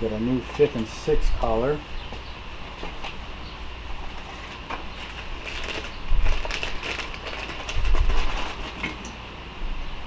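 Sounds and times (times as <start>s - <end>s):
rustling: 4.0s - 9.1s.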